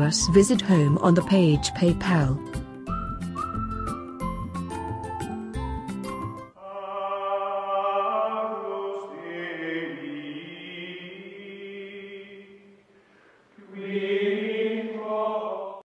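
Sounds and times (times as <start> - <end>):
sustained chanting voices: 6.6 - 12.8, 13.6 - 15.8.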